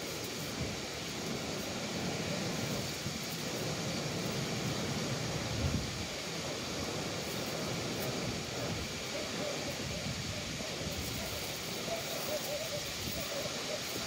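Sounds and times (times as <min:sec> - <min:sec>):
wind on microphone: 0:00.4 - 0:06.2.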